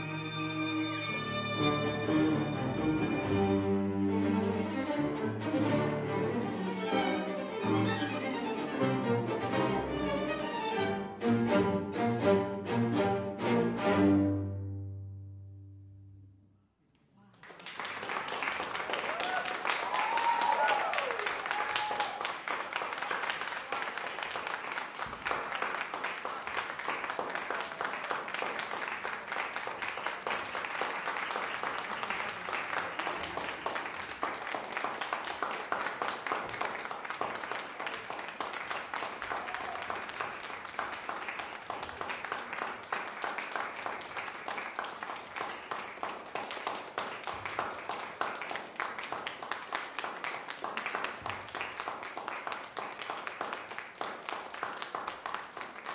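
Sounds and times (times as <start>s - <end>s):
audience applauding: 17.3s - 55.9s.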